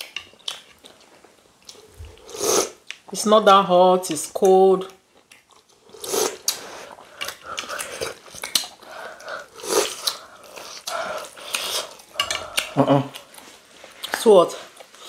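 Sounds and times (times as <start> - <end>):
chewing and biting: 5.1 - 14.2
wet mouth noises: 5.2 - 15.0.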